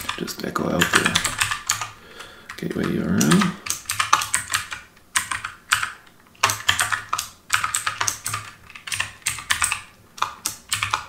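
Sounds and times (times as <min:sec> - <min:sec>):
keyboard typing: 0:00.0 - 0:11.0.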